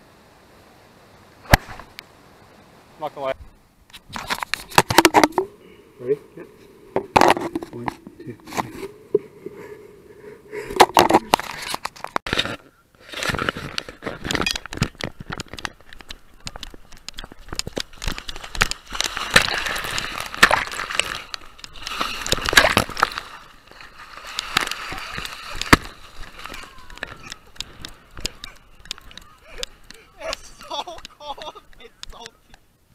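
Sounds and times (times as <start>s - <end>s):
water splashing: 4.6s - 12.1s, 14.2s - 32.5s.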